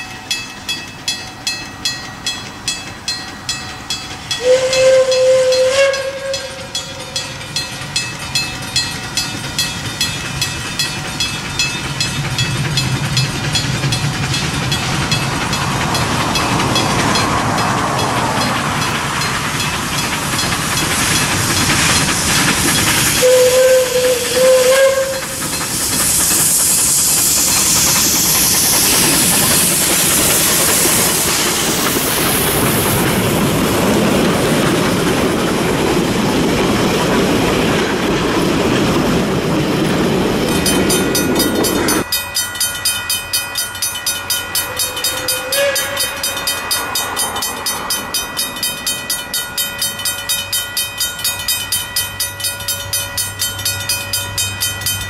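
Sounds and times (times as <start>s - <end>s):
steam locomotive running past: 0.0s - 55.0s
steam locomotive whistle: 4.3s - 7.4s, 23.0s - 31.3s, 44.5s - 46.6s.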